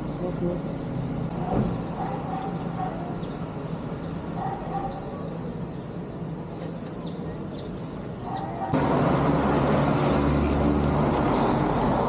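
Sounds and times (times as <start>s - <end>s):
faint dog barking: 1.3s - 3.2s, 4.4s - 5.3s, 8.2s - 8.8s.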